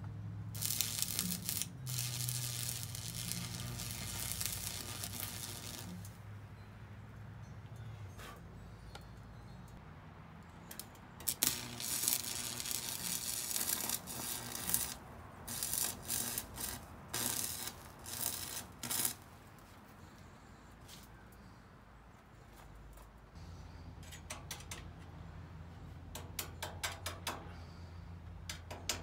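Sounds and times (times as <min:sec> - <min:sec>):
welding arc crackling and hissing: 0:00.6 - 0:06.2, 0:11.2 - 0:19.3.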